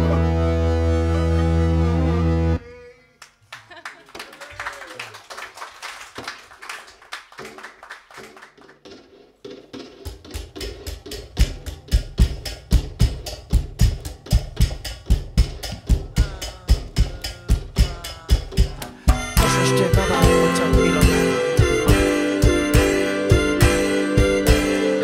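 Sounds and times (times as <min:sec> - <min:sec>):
steady drum beat: 0:09.4 - 0:25.0.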